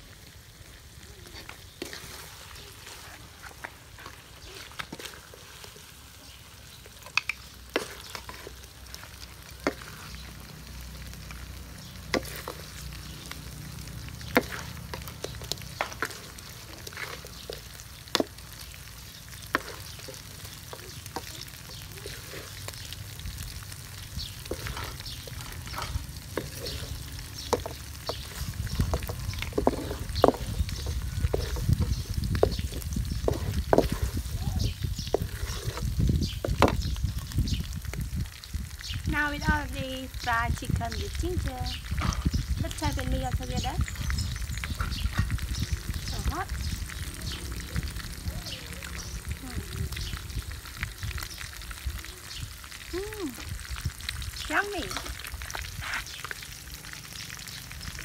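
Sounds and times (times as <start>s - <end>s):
frying sizzle: 0.0s - 58.0s
spatula scraping a steel wok: 1.3s - 11.4s, 12.0s - 18.4s, 19.4s - 22.9s, 23.9s - 36.8s.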